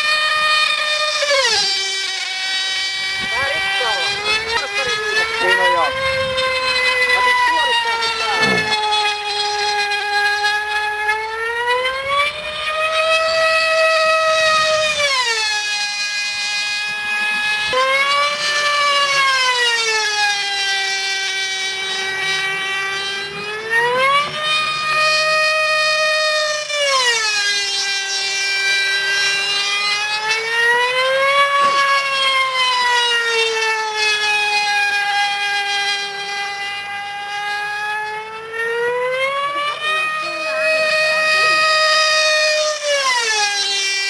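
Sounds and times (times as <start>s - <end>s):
model aircraft engine screaming: 0.0s - 44.0s.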